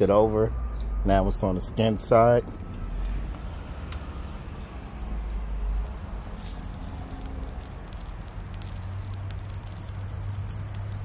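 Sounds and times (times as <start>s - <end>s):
low steady rumble: 2.6s - 11.0s
fish sizzling on a grill: 2.9s - 11.0s
small pops and crackles: 3.0s - 11.0s.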